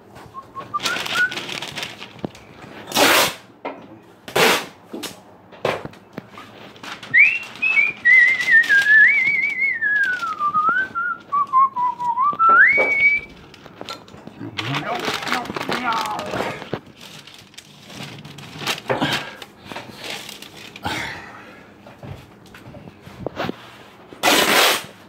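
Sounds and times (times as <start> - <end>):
person whistling a tune: 0.3 - 1.4, 7.1 - 13.3
short harsh noises: 2.8 - 3.5, 4.3 - 4.8, 24.2 - 25.0.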